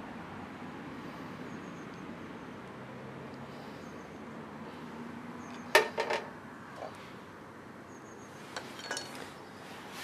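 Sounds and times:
metal tools clinking on floor: 8.6 - 9.2.

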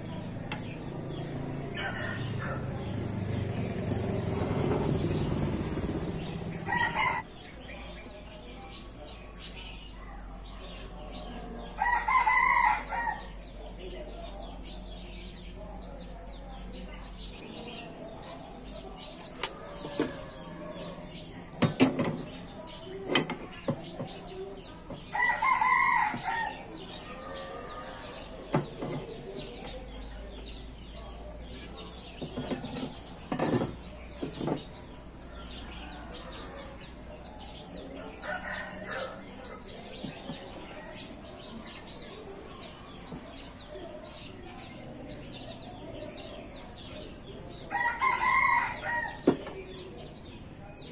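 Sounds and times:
rooster crowing: 1.8 - 2.8, 6.6 - 7.2, 47.7 - 49.2.

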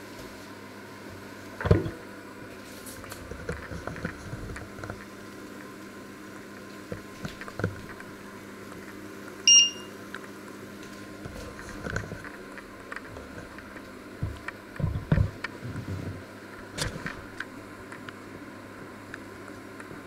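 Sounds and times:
short electronic beep: 9.5 - 9.9.

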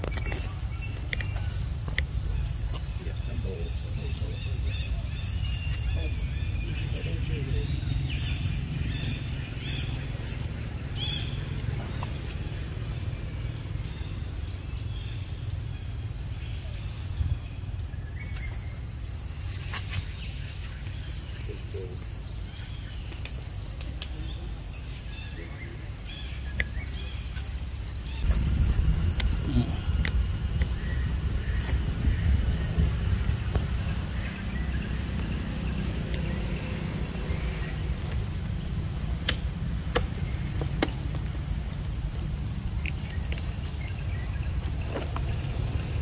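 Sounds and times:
low rumble: 28.2 - 35.5.

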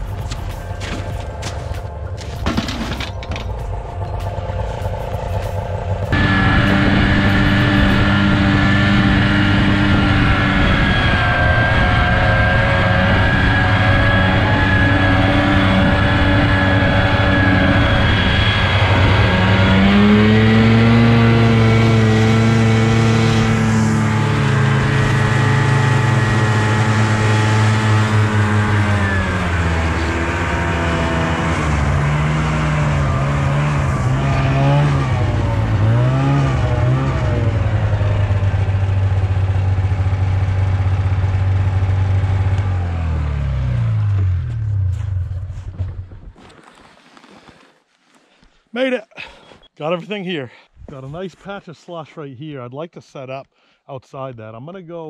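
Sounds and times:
snowmobile engine revving: 3.6 - 45.9.

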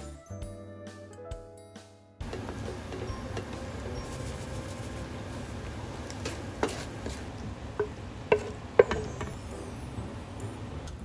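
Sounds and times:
wooden spatula scraping a pan: 2.2 - 9.4
utensil knocking against pan: 7.8 - 9.4.

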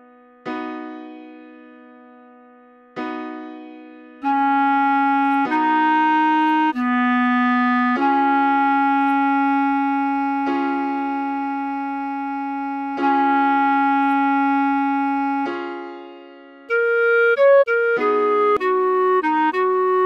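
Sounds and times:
clarinet playing slow melody: 4.2 - 20.0.

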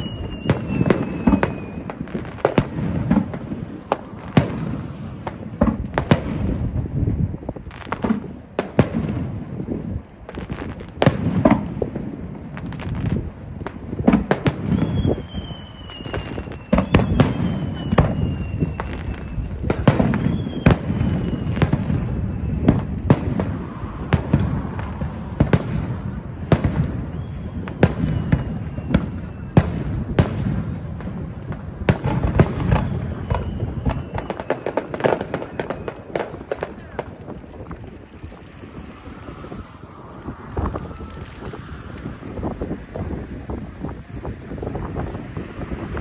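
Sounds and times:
fireworks bangs: 0.0 - 46.0
fireworks whistles gliding down: 0.0 - 46.0
low rumble: 21.8 - 27.6, 36.6 - 46.0.

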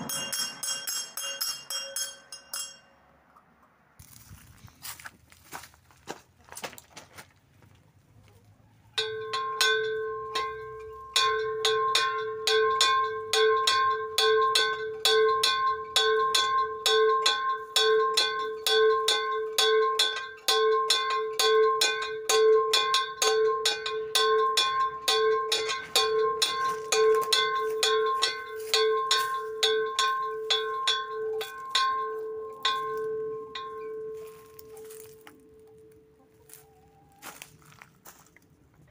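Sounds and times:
small metal bell ringing: 0.0 - 3.1, 9.0 - 35.9.

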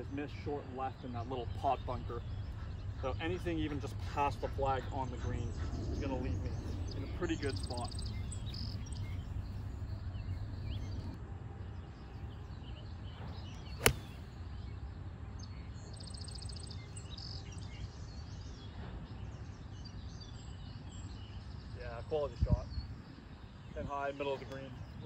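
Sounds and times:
wind on microphone: 2.2 - 11.2
golf club striking ball: 13.8 - 14.3.

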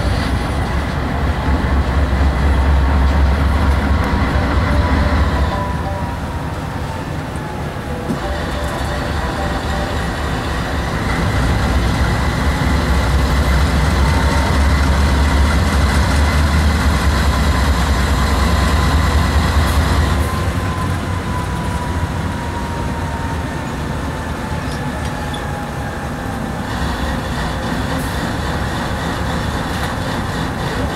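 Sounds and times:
diesel locomotive engine rumble: 0.0 - 30.9.

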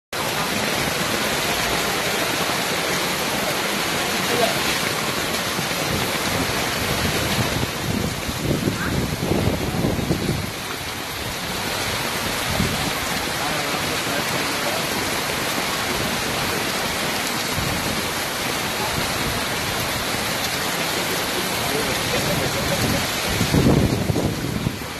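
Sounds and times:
heavy rain pouring: 0.1 - 24.9
floodwater rushing: 0.2 - 24.9.

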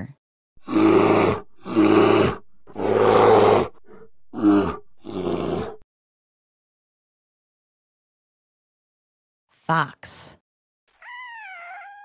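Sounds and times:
bear growling: 0.6 - 5.8.

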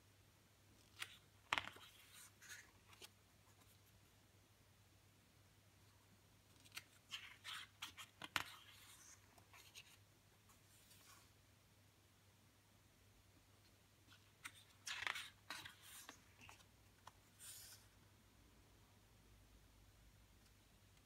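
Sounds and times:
booklet pages turning: 0.8 - 3.9, 6.4 - 11.3, 14.0 - 18.0.

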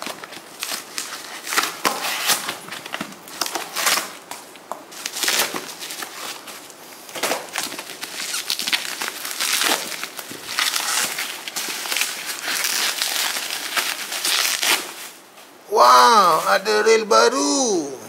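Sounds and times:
bubble wrap crinkling: 0.0 - 15.6
cardboard box tearing: 7.2 - 15.1.

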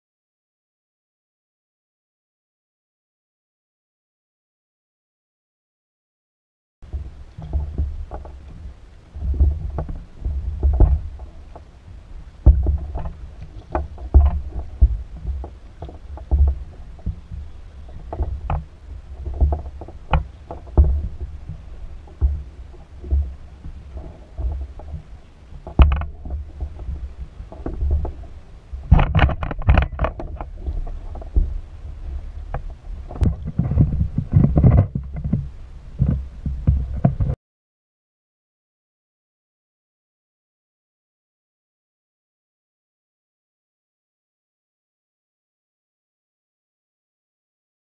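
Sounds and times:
water slapping against kayak hull: 6.8 - 37.4.

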